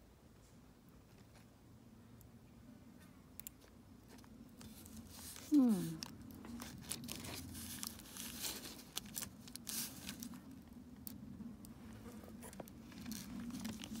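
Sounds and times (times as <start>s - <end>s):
plastic wrap crinkling: 4.1s - 11.2s, 12.1s - 14.0s.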